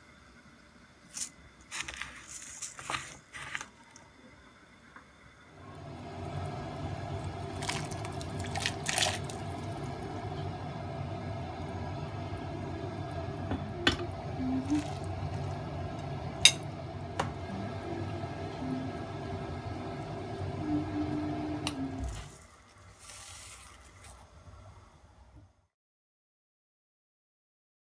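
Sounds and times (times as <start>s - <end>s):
broth bubbling in a pot: 2.4s - 25.0s
utensil clinking against pot: 16.4s - 16.7s.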